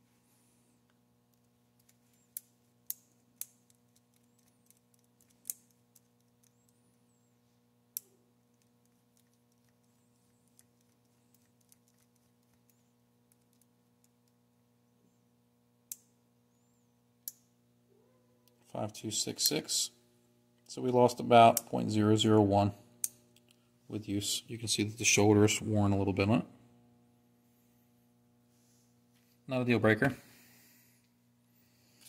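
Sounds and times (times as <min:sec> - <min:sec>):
faint electrical hum: 0:00.0 - 0:32.0
sharp metal clicks: 0:01.3 - 0:06.8.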